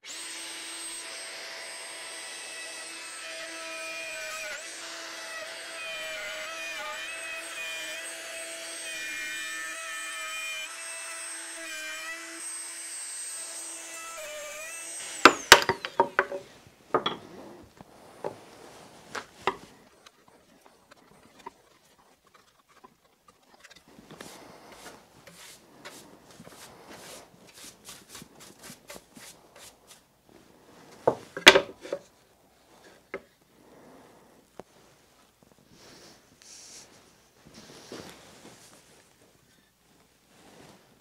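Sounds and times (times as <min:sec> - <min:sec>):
chisel prying wood: 0:15.2 - 0:16.4
wood knocks and clatter: 0:15.3 - 0:17.2, 0:31.0 - 0:32.1
hand brush sweeping sawdust: 0:17.3 - 0:19.8, 0:23.9 - 0:31.0, 0:35.8 - 0:38.9.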